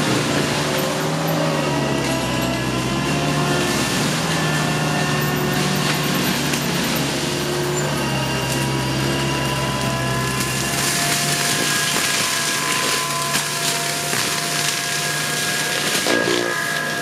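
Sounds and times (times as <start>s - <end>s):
mulcher engine running under load: 0.0s - 17.0s
mulching head grinding wood: 0.0s - 17.0s
sharp wood cracks: 8.5s - 17.0s.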